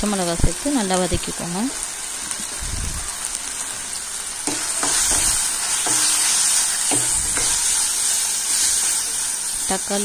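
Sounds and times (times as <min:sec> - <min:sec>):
vegetables sizzling in hot oil: 0:00.0 - 0:10.0
metal spoon scraping pan: 0:04.4 - 0:09.4
spoon knocking on steel: 0:04.5 - 0:06.2, 0:06.9 - 0:07.6.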